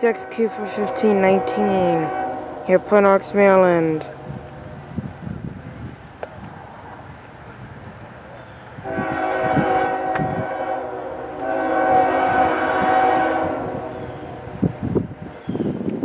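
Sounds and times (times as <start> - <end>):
locomotive air horn blasts: 0.0 - 4.3, 8.8 - 14.7.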